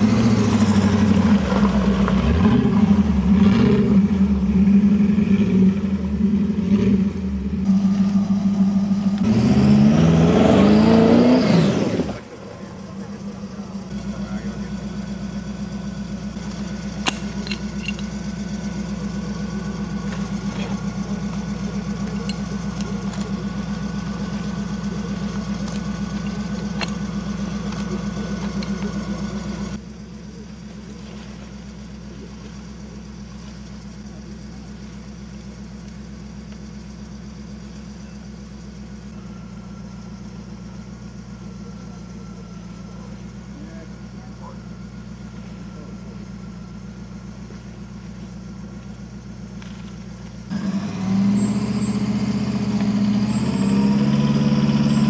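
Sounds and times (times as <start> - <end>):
vehicle engine idling: 0.0 - 55.0.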